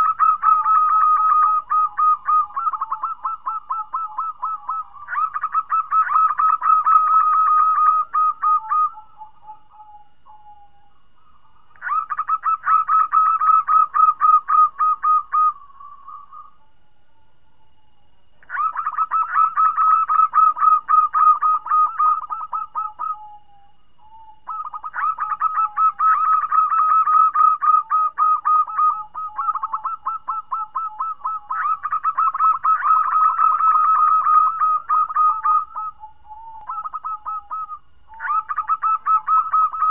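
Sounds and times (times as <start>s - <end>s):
dove cooing: 0.0s - 17.8s, 18.4s - 39.9s.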